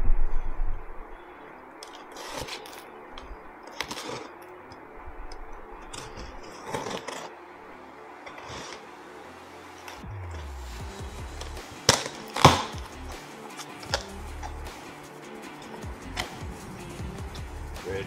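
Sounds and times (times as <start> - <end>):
cardboard rustling: 1.9 - 2.9
blade slitting packing tape: 11.4 - 12.8.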